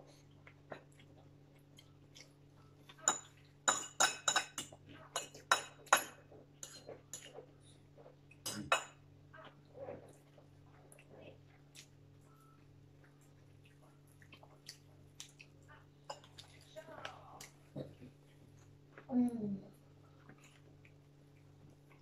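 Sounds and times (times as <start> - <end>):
forks clinking on plates: 3.0 - 7.4.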